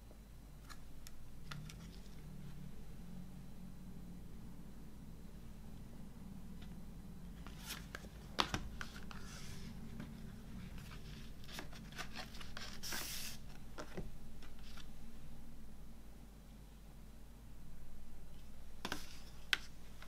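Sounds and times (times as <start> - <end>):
faint low hum: 0.0 - 20.0
paper insert rustling: 7.4 - 14.9.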